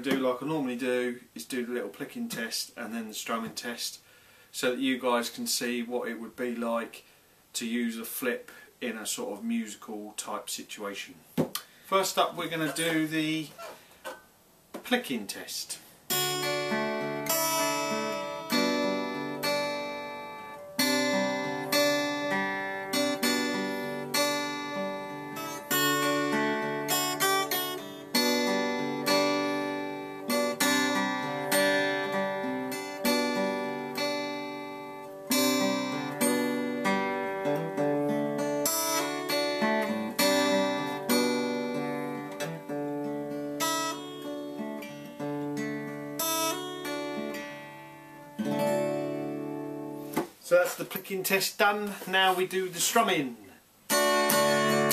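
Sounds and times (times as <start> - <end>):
fingerpicked acoustic guitar: 16.1 - 50.4, 53.9 - 54.9.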